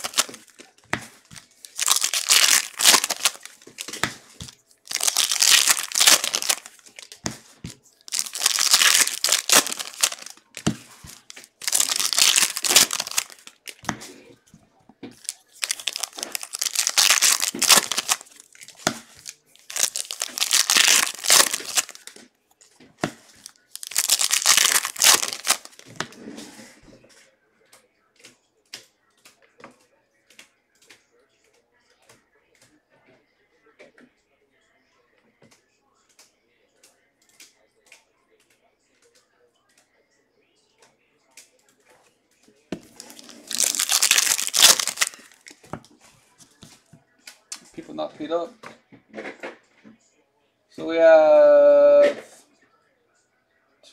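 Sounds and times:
plastic wrappers crinkling and tearing: 0:00.0 - 0:14.0, 0:15.1 - 0:22.2, 0:23.2 - 0:26.0, 0:42.8 - 0:45.6.

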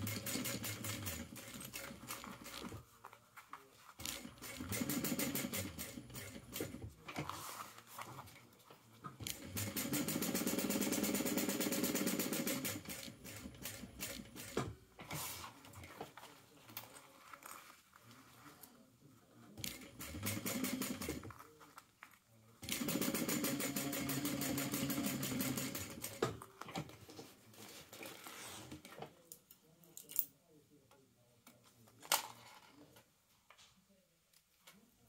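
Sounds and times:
electric sewing machine stitching: 0:00.0 - 0:02.2, 0:04.0 - 0:06.8, 0:09.3 - 0:14.6, 0:19.6 - 0:21.3, 0:22.6 - 0:26.3.

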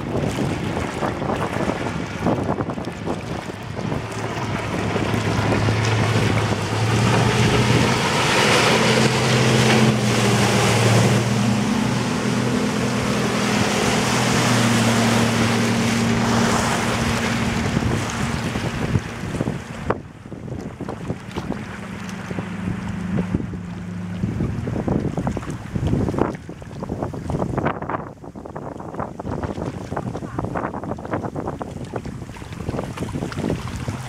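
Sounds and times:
outboard engine at speed: 0:00.0 - 0:34.0
wind noise: 0:00.0 - 0:34.0.

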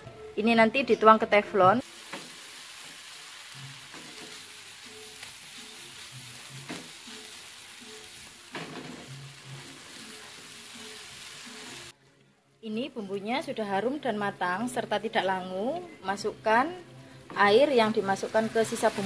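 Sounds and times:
paste sizzling in a pan: 0:01.8 - 0:11.9, 0:18.1 - 0:19.0.

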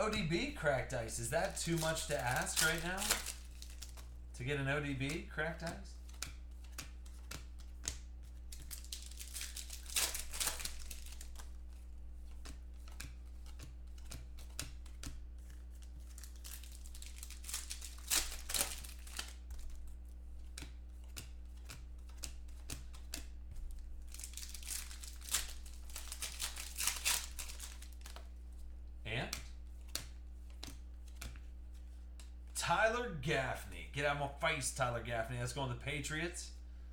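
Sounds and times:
foil wrappers crinkling and tearing: 0:00.0 - 0:04.2, 0:08.1 - 0:13.0, 0:15.6 - 0:19.9, 0:23.9 - 0:28.3
cards clicking: 0:00.0 - 0:28.4, 0:29.2 - 0:32.5.

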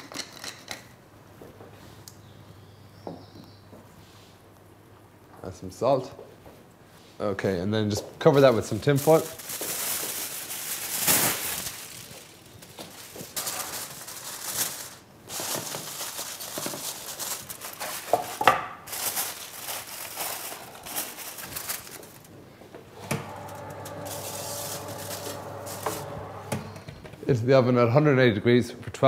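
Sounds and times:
aluminium foil crinkling: 0:08.4 - 0:22.4, 0:23.3 - 0:26.3.

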